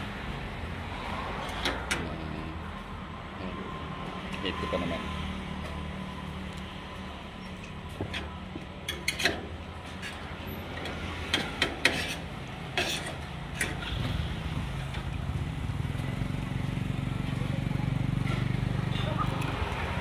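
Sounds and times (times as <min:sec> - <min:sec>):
fork and spoon scraping a plate: 0:11.8 - 0:13.9.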